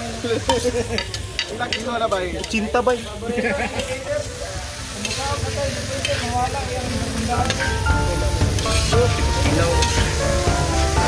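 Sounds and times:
meat sizzling in a wok: 0.0s - 11.0s
metal spatula scraping pan: 6.0s - 6.4s, 8.5s - 10.2s.

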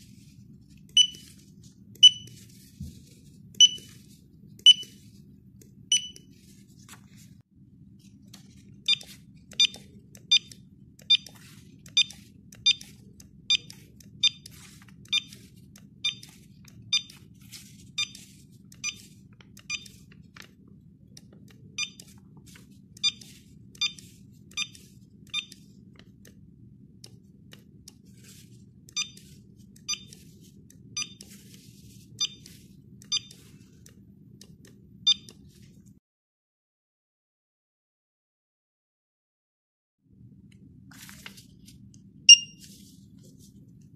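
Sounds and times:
barcode scanner beeps: 0.9s - 1.3s, 2.0s - 2.4s, 3.6s - 4.0s, 4.6s - 5.0s, 5.9s - 6.3s, 8.9s - 17.3s, 18.0s - 20.1s, 21.8s - 22.1s, 23.0s - 25.6s, 28.9s - 30.2s, 31.0s - 31.3s, 32.2s - 33.4s, 35.1s - 35.4s, 42.3s - 42.7s.

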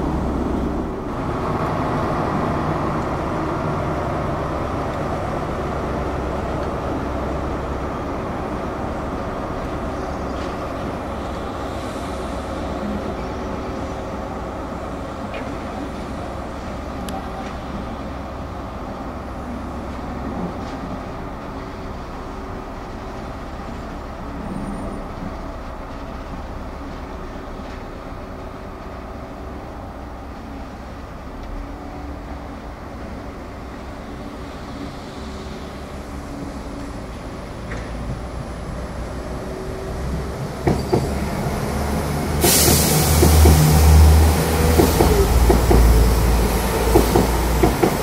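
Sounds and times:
diesel locomotive engine drone: 0.0s - 48.0s.

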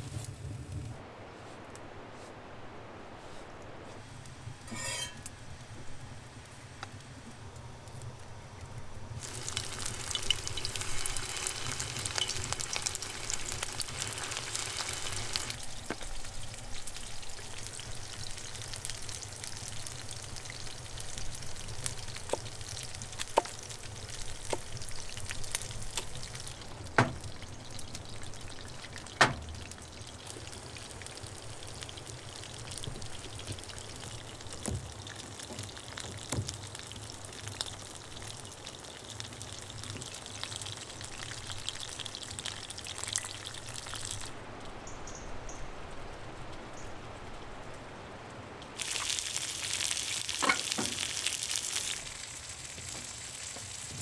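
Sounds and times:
meat sizzling in hot oil: 4.7s - 5.3s, 9.2s - 44.3s, 48.8s - 54.0s.

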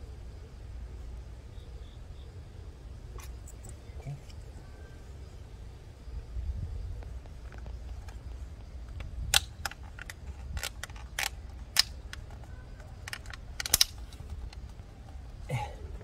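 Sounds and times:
low steady rumble: 0.0s - 16.0s
hard plastic clicking: 7.2s - 14.8s.

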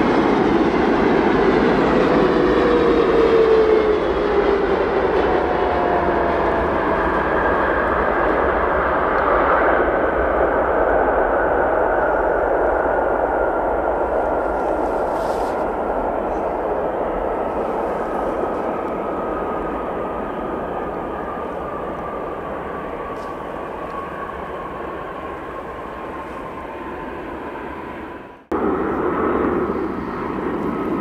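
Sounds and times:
jet airliner engines passing: 0.0s - 31.0s.

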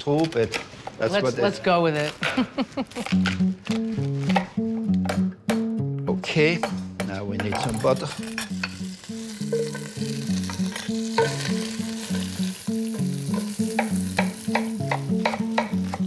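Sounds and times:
shellfish sizzling in butter: 7.7s - 16.0s
utensil clicking against pan: 13.2s - 16.0s.

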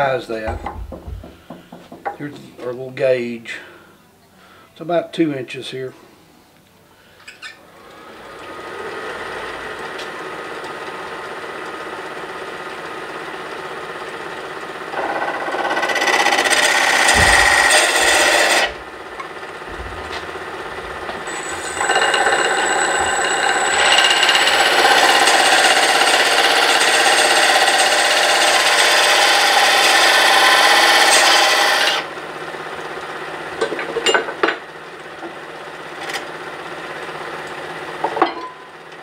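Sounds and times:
lathe tool scraping wood: 14.9s - 32.1s.

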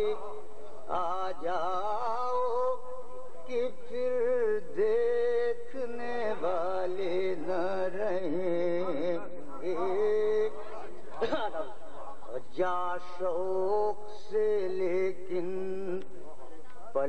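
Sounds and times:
man singing verse: 0.0s - 17.0s.

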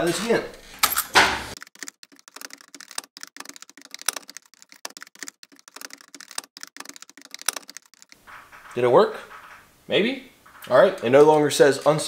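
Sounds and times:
fingers clicking and tapping plastic: 1.6s - 8.2s.

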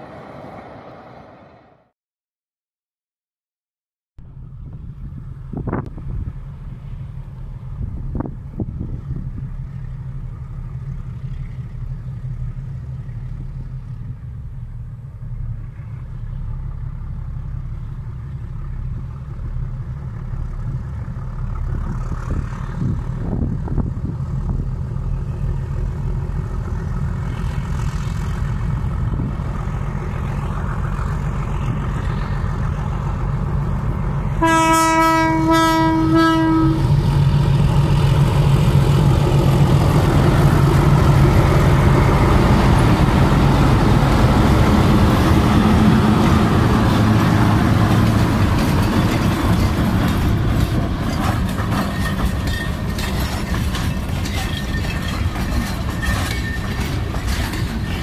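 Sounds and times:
locomotive engine working hard: 4.3s - 58.0s
train air horn blasts: 34.4s - 37.0s.

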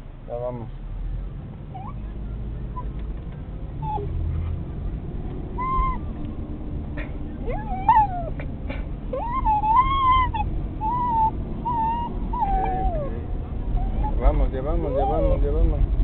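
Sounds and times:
car rumble: 0.0s - 16.0s
dog whining: 1.7s - 2.0s, 3.8s - 4.4s, 5.5s - 6.1s, 7.4s - 15.8s.

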